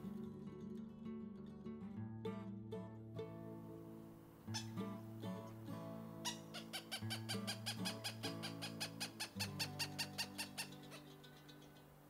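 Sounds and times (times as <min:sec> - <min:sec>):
background music with low notes: 0:02.2 - 0:11.9
hawk calling: 0:04.5 - 0:05.0, 0:06.2 - 0:11.9.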